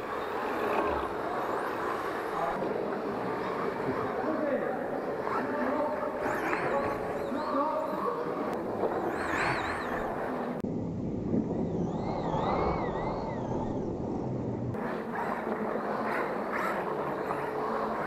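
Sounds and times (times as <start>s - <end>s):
cars and track noise: 0.0s - 18.0s
electric motors whining: 0.0s - 18.0s.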